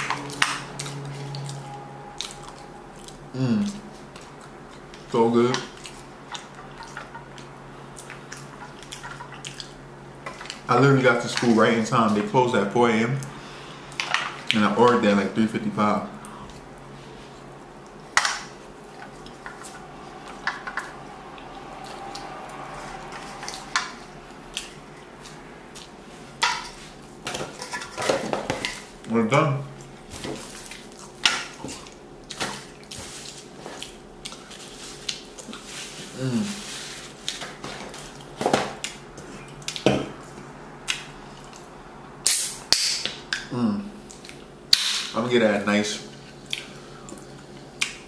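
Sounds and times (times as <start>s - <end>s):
steady low hum: 0.0s - 44.8s
chewing: 5.7s - 10.6s.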